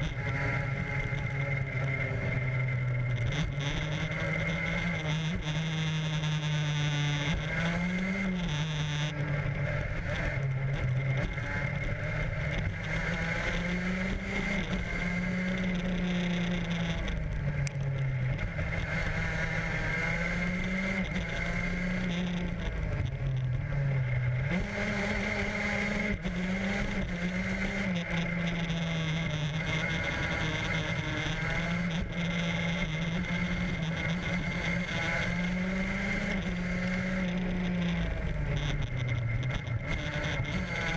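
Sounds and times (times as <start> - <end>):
go-kart engine running hard: 0.0 - 40.9.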